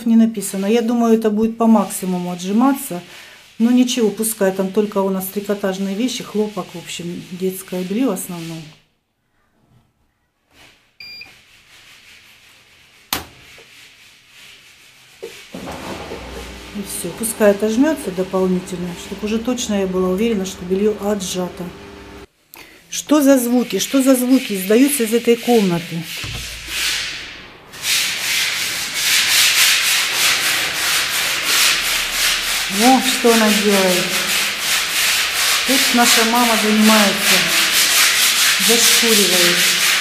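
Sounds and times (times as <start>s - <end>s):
sanding plaster by hand: 1.8s - 8.7s, 11.4s - 21.7s, 23.5s - 40.0s
washing machine beep: 11.0s - 11.4s
scratchy rasping noise: 11.4s - 21.7s, 23.6s - 40.0s.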